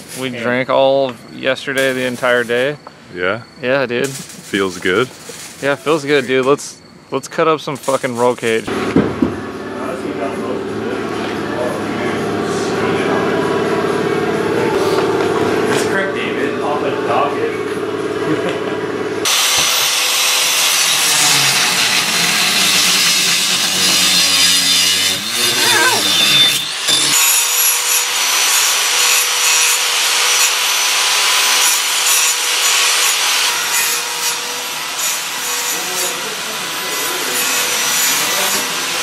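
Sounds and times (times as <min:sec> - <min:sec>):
angle grinder cutting steel: 0:19.2 - 0:39.0.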